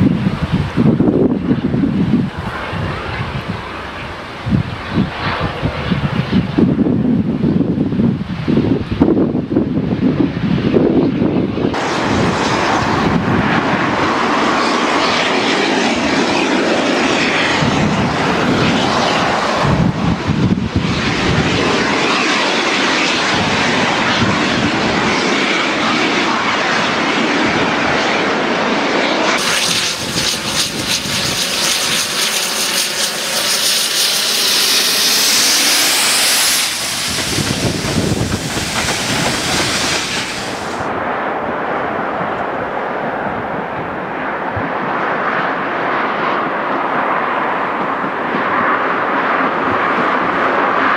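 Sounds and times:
steam locomotive exhaust: 29.4s - 40.9s.

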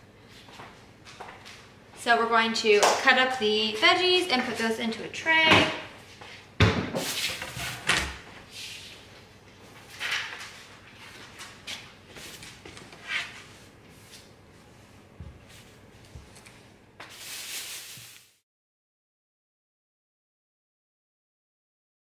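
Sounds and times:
plastic bag rustling: 17.1s - 18.4s.

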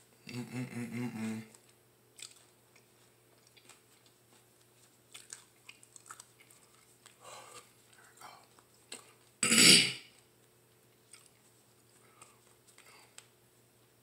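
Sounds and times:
wet mouth clicks and lip smacks: 2.2s - 3.8s.

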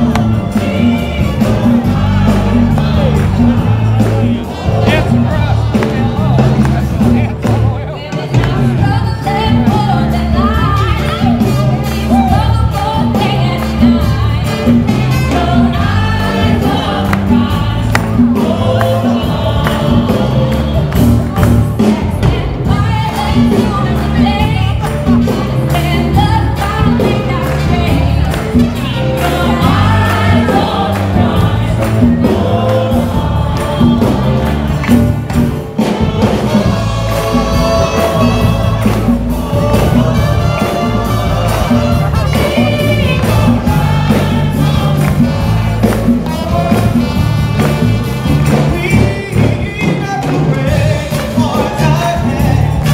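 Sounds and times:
band playing: 0.0s - 52.9s
choir singing gospel: 0.0s - 52.9s
steady percussion beat: 0.0s - 52.9s.

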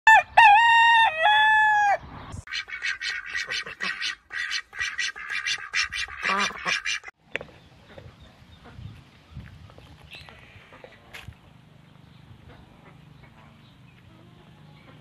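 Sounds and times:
rooster crowing: 0.1s - 2.0s
hen clucking: 2.4s - 7.2s.

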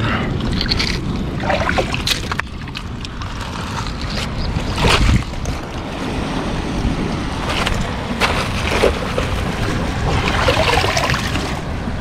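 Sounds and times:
sea waves washing: 0.3s - 12.0s
wind buffeting microphone: 1.0s - 12.0s.

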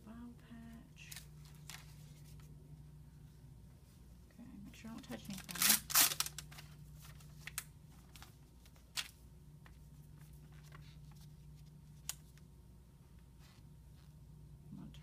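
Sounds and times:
film dressing crinkling: 1.0s - 2.5s, 4.9s - 12.5s.

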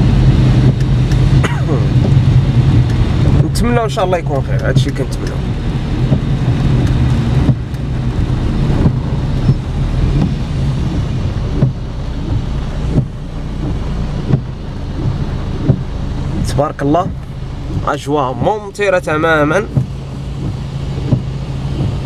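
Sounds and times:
car engine and tyre noise: 0.0s - 22.0s
rain on windshield: 0.0s - 22.0s
windshield wipers sweeping: 0.0s - 22.0s.

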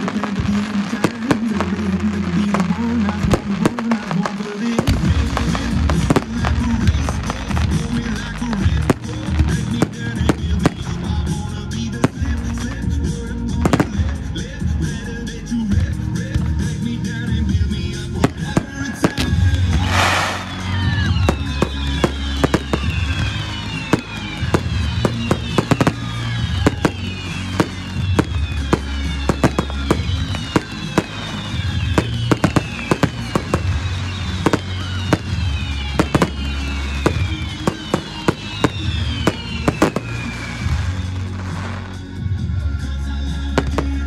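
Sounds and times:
firework reports: 0.0s - 44.0s
music: 0.0s - 44.0s
burst of noise: 18.2s - 42.1s
firework whistles sliding down: 18.3s - 42.1s.

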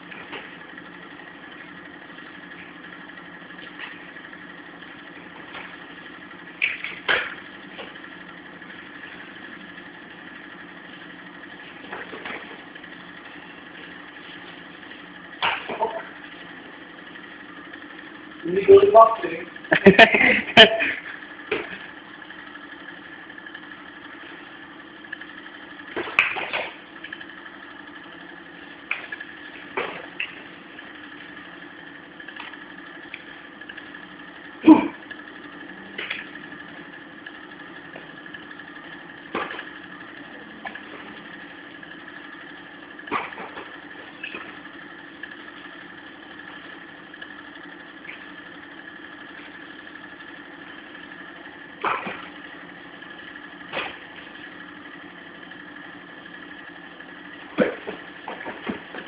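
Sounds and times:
steady droning hum: 0.0s - 59.0s.

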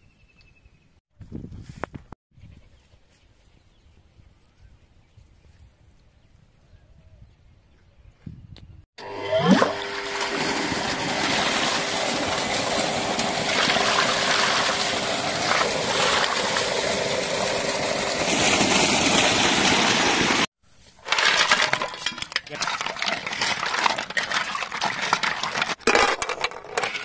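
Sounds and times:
water gushing into metal pot: 9.4s - 20.5s.

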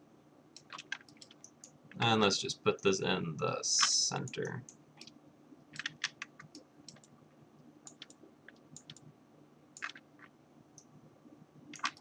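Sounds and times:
faint low hum: 0.0s - 12.0s
mouse and keyboard clicks: 5.8s - 7.1s, 7.8s - 9.1s, 9.8s - 10.3s, 11.7s - 12.0s.

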